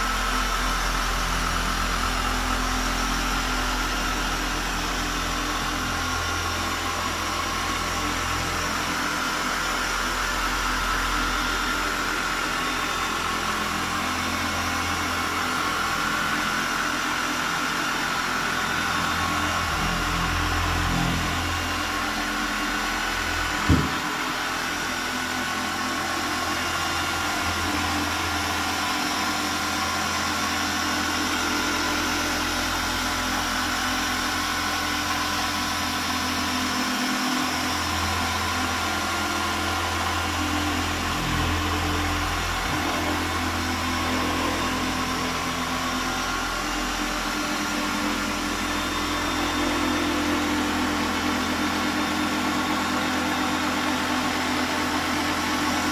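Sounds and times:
machine polisher running: 0.0s - 55.9s
sharp knock: 23.6s - 24.0s.

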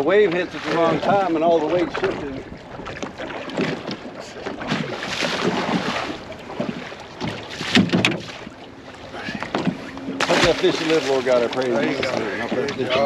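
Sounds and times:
water slapping against boat hull: 0.0s - 13.0s
wind buffeting microphone: 0.0s - 13.0s
knocks on boat: 6.6s - 8.5s, 9.3s - 13.0s.

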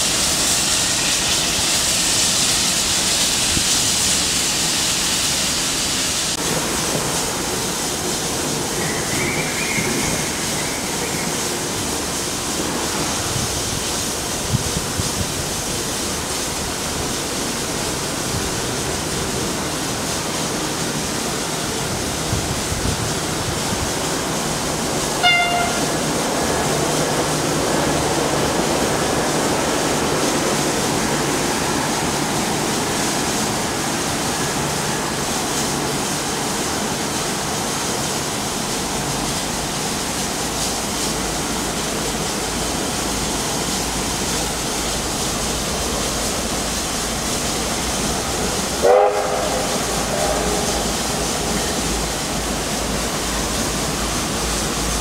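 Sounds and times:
train rushing: 0.0s - 55.0s
train whistle toot: 25.2s - 26.0s, 48.8s - 50.6s.

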